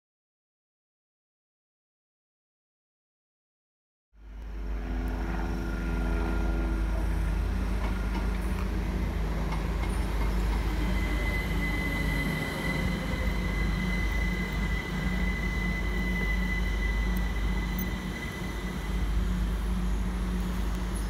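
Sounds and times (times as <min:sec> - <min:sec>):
electric train rumble: 0:04.2 - 0:21.0
high steady whine: 0:10.2 - 0:21.0.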